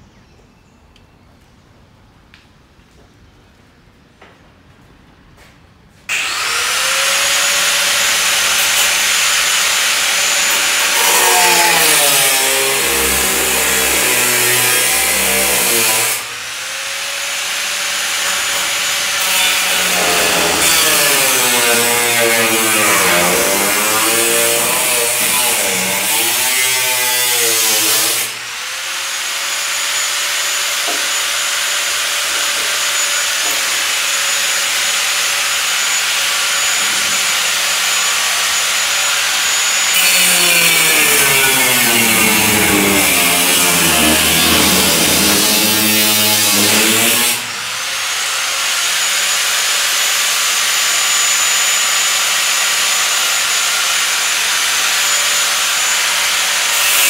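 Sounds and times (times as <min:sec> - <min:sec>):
angle grinder cutting metal: 0:06.1 - 0:57.0.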